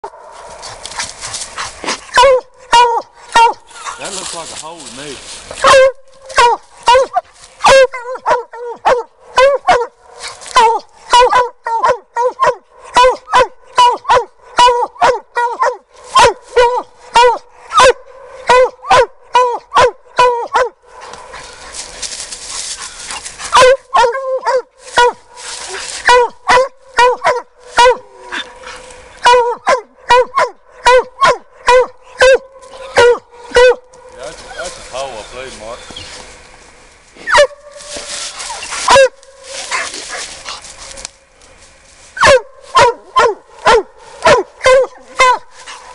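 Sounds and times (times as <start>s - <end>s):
hounds barking: 0.0s - 36.3s, 37.2s - 41.1s, 42.2s - 45.9s
rustling scraping noise: 0.1s - 2.2s, 3.6s - 7.7s, 10.0s - 10.6s, 20.9s - 23.6s, 24.8s - 26.1s, 32.6s - 45.9s.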